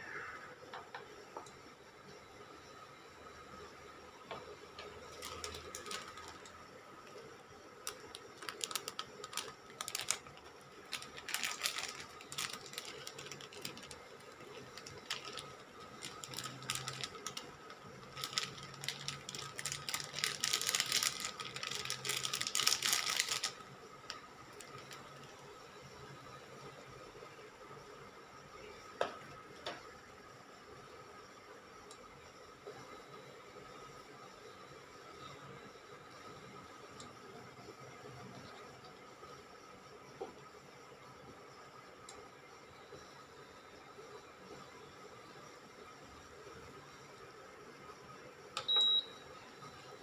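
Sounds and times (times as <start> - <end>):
plastic sachet crinkling: 5.0 - 6.6, 7.8 - 25.3.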